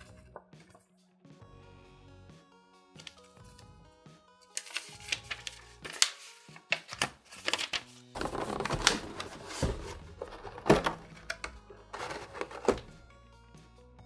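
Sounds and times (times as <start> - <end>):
paper rustling: 4.5 - 11.1, 11.9 - 12.9
plastic tray crinkling and clicking: 8.2 - 12.9.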